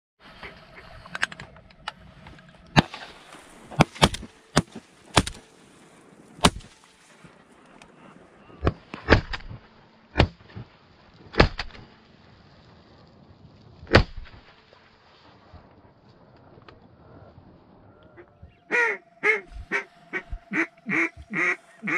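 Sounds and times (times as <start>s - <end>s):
shotgun shots: 3.7s - 5.4s, 6.4s - 6.8s, 11.4s - 11.8s.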